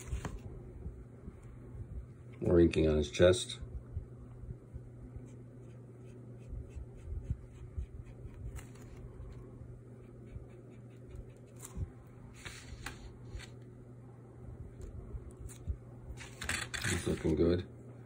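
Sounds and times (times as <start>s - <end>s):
steady low hum: 0.0s - 18.0s
marker scratching on paper: 10.0s - 11.8s.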